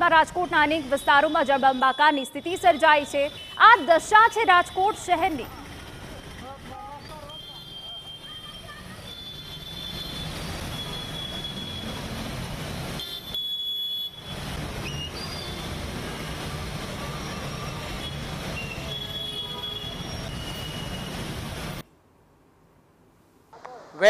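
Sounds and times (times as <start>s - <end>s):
noisy water wash: 14.3s - 21.8s.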